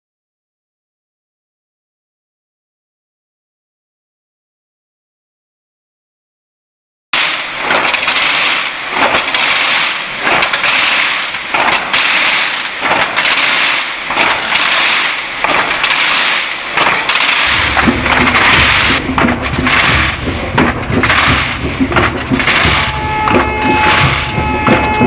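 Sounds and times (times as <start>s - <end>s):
wooden rattles clattering: 7.2s - 25.0s
low rumble: 16.6s - 25.0s.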